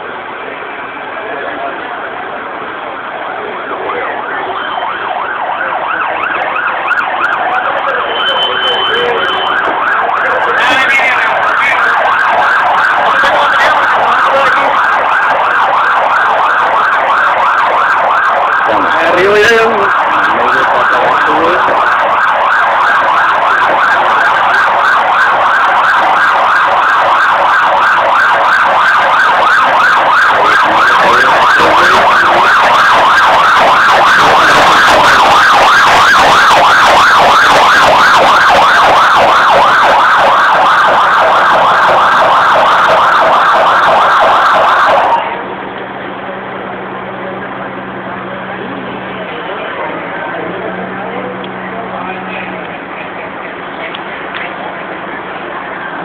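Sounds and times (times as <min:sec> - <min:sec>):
emergency siren yelping: 0:01.7 - 0:45.5.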